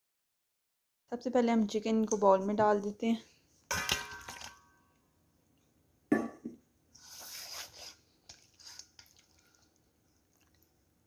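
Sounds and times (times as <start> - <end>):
knock against steel bowl: 6.1 - 6.6
wet rustling of raw chicken: 7.1 - 10.6.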